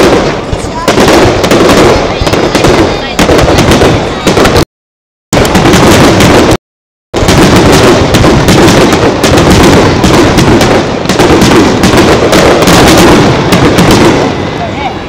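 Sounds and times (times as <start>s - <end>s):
fireworks bangs and crackles: 0.0s - 4.7s, 5.3s - 15.0s.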